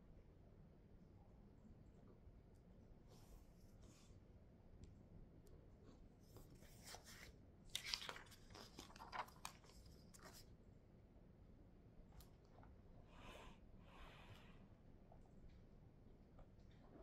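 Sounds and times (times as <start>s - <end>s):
book page turning: 6.3s - 10.5s.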